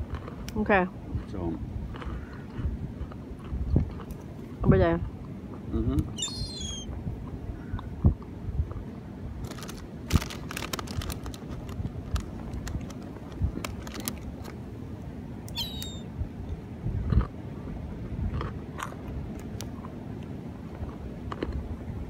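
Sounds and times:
gulls calling: 6.0s - 7.0s, 15.5s - 16.1s.

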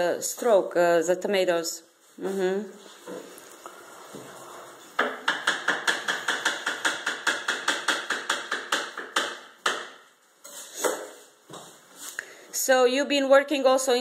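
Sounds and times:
knife chopping on wooden board: 10.8s - 11.2s.

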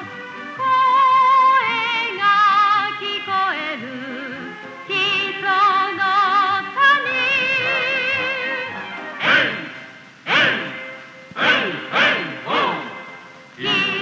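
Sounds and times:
woman singing with vibrato: 0.6s - 8.8s
band accompaniment: 7.0s - 14.0s.

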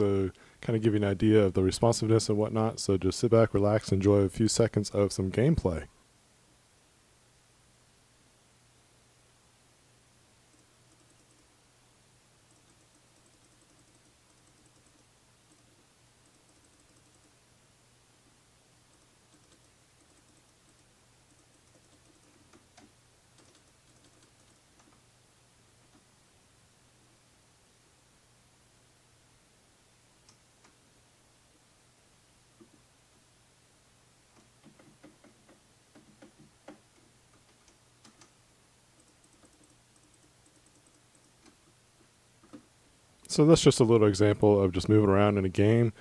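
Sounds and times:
keyboard keys clicking: 18.9s - 25.0s, 39.0s - 41.6s.

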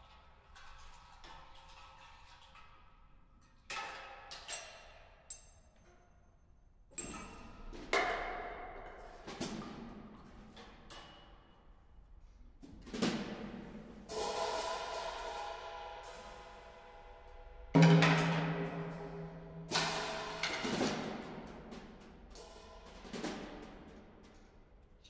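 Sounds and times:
drum kit hits: 14.1s - 16.6s, 17.8s - 23.8s
cymbal ringing: 14.1s - 17.5s.

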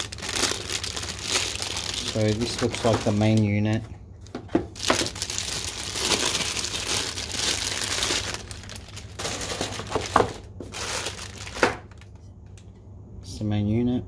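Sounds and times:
plastic wrapping crinkling: 0.0s - 12.3s.

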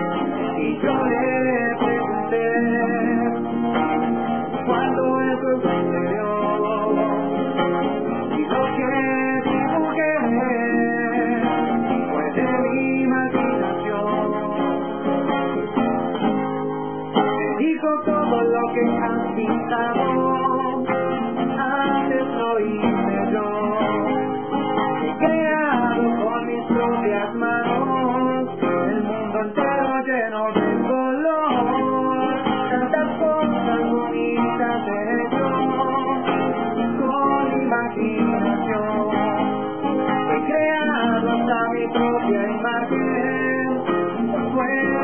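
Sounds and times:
man singing: 0.0s - 15.8s, 17.1s - 45.0s
acoustic guitar strumming: 0.0s - 45.0s.

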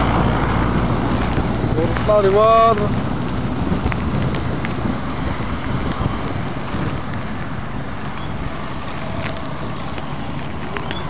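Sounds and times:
fast-flowing river rushing: 0.0s - 11.0s
wind buffeting microphone: 0.0s - 11.0s.

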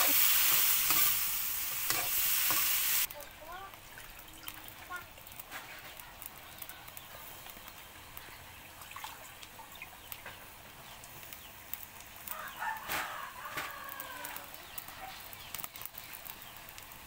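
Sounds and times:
faint clicks and crackles: 3.0s - 17.0s
rooster crowing: 12.3s - 14.5s.

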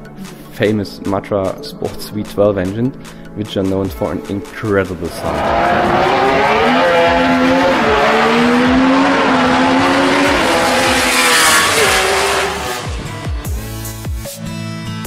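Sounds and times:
race car engine passing: 5.0s - 13.4s
electronic music: 5.0s - 13.9s.

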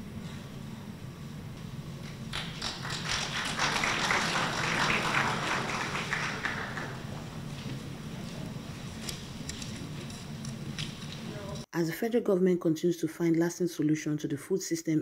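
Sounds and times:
low steady hum: 0.0s - 14.4s
audience applause: 2.3s - 7.3s.

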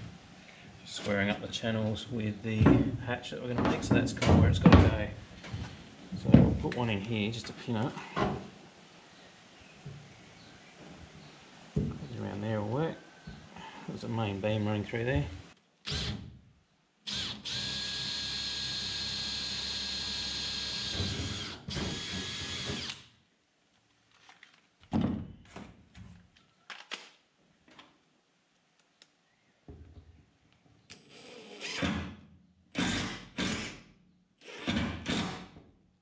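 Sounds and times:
cordless drill whining: 15.9s - 16.2s, 17.1s - 23.1s
impact driver driving screw: 17.1s - 23.1s, 32.8s - 33.8s, 34.4s - 35.5s.

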